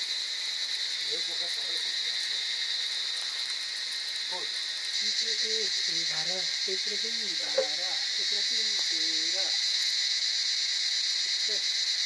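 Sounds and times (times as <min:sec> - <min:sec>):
insects chirring: 0:00.0 - 0:12.0
person talking: 0:07.3 - 0:08.0.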